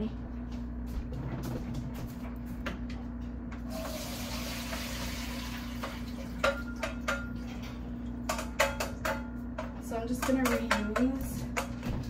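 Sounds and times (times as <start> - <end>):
cookware clinking: 5.8 - 7.4.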